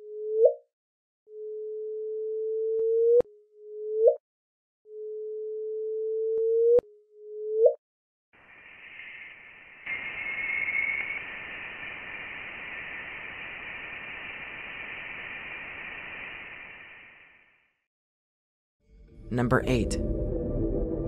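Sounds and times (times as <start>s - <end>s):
steady hiss: 8.4s - 17.7s.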